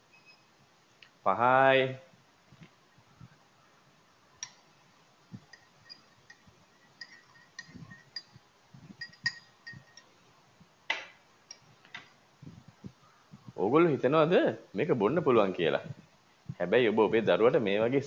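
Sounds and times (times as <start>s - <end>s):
teaspoon clinking in cup: 5.4s - 10.1s.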